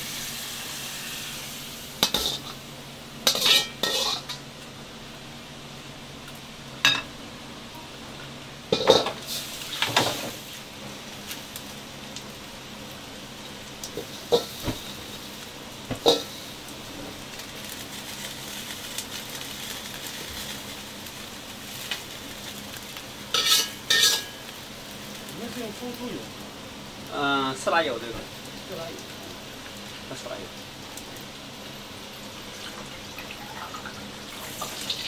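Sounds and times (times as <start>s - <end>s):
faint sizzle and hiss: 0.0s - 35.0s
metal utensils clanking on pans: 2.0s - 2.6s, 3.2s - 4.4s, 8.7s - 10.4s, 15.9s - 16.4s, 23.3s - 24.5s.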